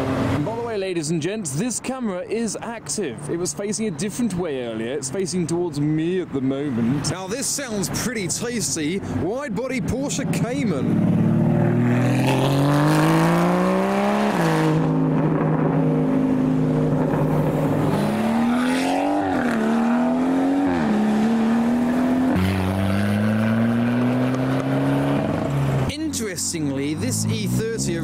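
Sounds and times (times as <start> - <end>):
car engine revving through gears: 0.0 - 0.5, 10.8 - 25.9.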